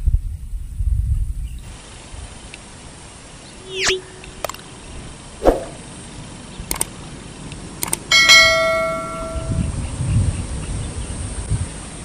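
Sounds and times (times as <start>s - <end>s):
mouse clicks: 7.8s - 8.0s
bell ding: 8.1s - 9.7s.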